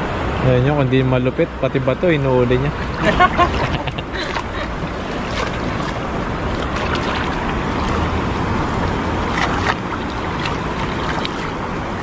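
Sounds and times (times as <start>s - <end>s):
water splashing and dripping: 2.8s - 12.0s.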